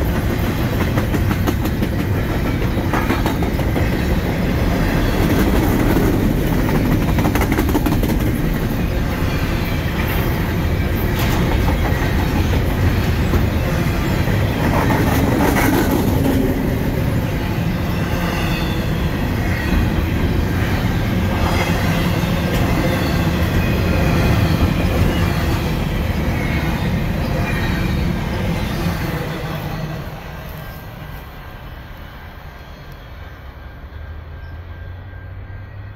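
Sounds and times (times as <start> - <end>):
train wheels clacking over rail joints: 0.0 - 16.7
train rumble: 0.0 - 35.9.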